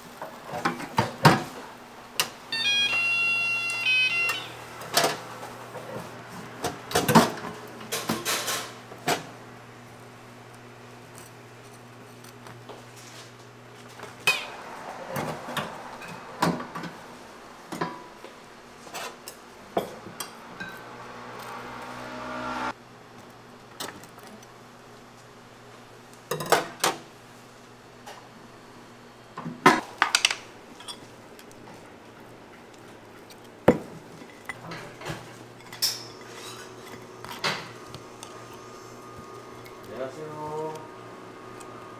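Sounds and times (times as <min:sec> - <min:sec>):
utensils and dishes clinking: 0:06.9 - 0:09.2, 0:14.2 - 0:16.9, 0:34.2 - 0:37.8.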